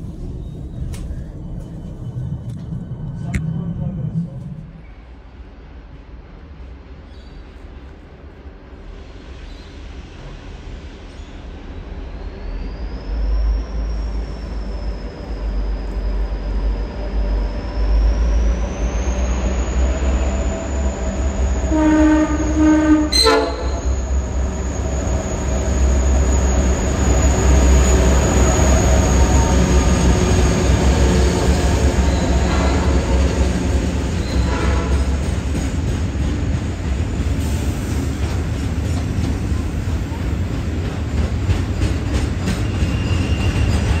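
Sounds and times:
diesel locomotive rumble: 12.9s - 44.0s
train horn blast: 21.7s - 24.0s, 34.3s - 35.2s.

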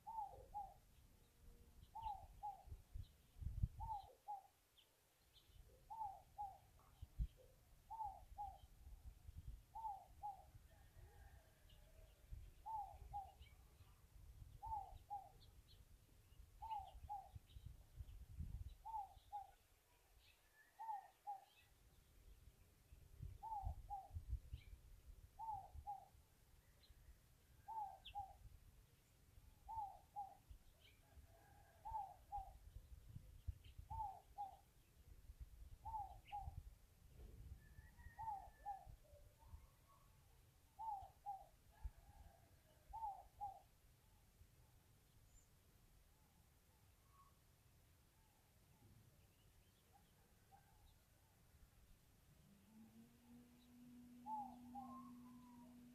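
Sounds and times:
faint high chirps: 52.7s - 55.9s.

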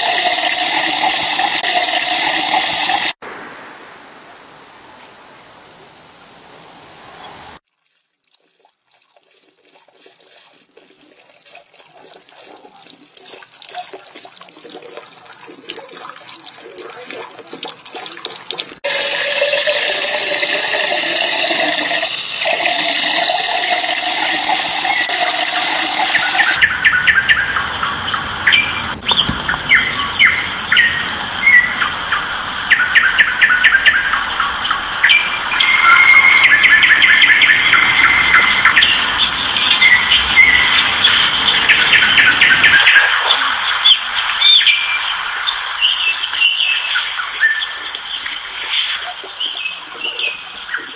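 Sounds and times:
water running in fountain: 0.0s - 3.2s, 7.6s - 26.6s, 44.6s - 50.9s
birds chirping: 24.8s - 50.9s.

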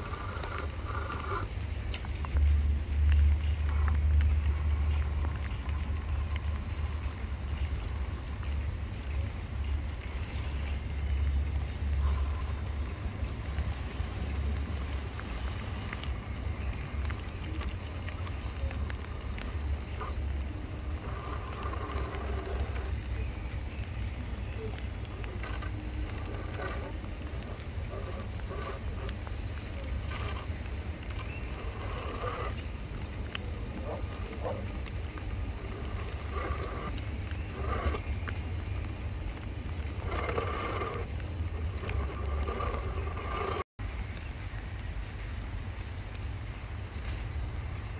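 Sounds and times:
toy truck electric motor whining: 0.0s - 1.5s, 17.0s - 38.9s, 39.6s - 43.6s
steady low rumble: 0.0s - 47.9s.

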